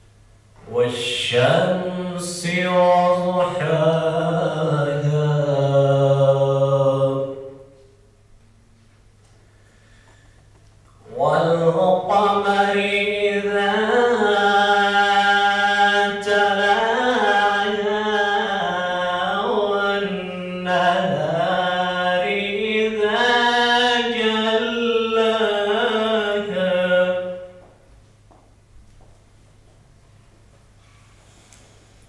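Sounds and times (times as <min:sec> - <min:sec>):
man chanting melodically: 0:00.6 - 0:07.8, 0:11.0 - 0:27.7.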